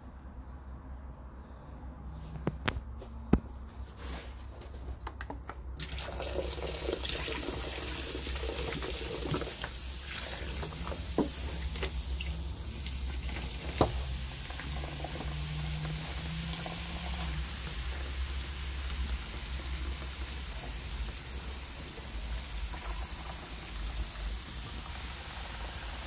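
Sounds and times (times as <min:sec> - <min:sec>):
baking soda foaming: 0:05.8 - 0:26.0
vinegar pouring into sink: 0:05.8 - 0:26.0.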